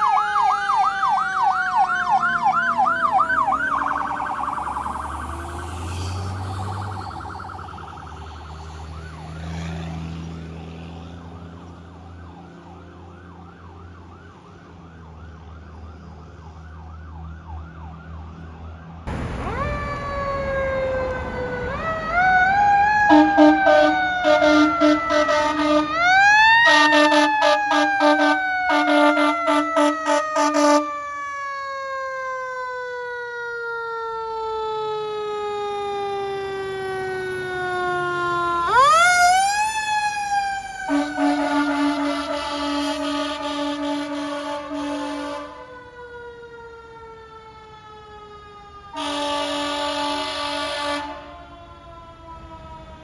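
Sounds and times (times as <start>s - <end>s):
truck engine rumble: 0.0s - 18.0s, 18.6s - 53.0s
wailing siren: 0.0s - 53.0s
warbling siren: 0.0s - 53.0s
horn blasts: 23.1s - 26.0s, 26.6s - 30.9s, 40.9s - 45.6s, 49.0s - 51.3s.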